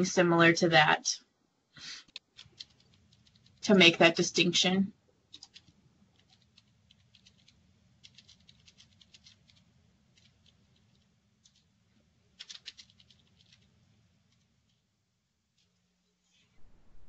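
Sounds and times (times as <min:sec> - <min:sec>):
low electrical hum: 0:00.0 - 0:17.0
computer keys typing: 0:02.1 - 0:03.7, 0:05.3 - 0:11.7, 0:12.4 - 0:13.7.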